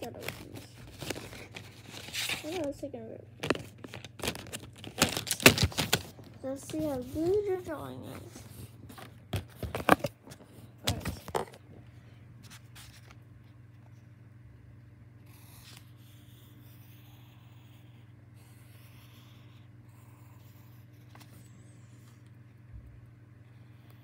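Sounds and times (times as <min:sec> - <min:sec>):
notebook handling clatter: 0:00.0 - 0:02.7, 0:03.4 - 0:07.3, 0:08.1 - 0:11.6
low steady hum: 0:00.0 - 0:24.0
pencil scratching on paper: 0:15.3 - 0:22.0.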